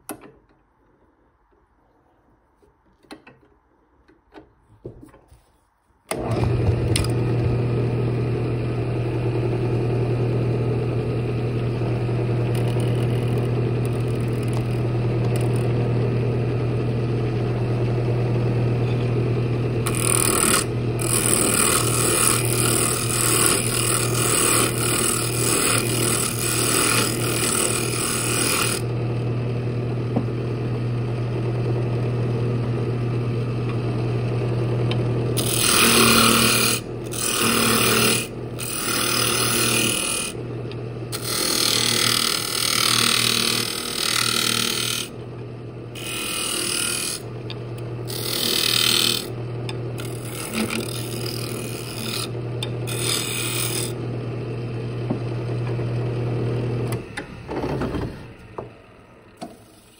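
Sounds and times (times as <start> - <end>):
wood lathe humming: 6.1 - 59.9
gouge scraping wood: 19.9 - 28.8, 35.4 - 40.4, 41.2 - 45.1, 46.0 - 47.2, 48.1 - 49.3, 50.0 - 54.0.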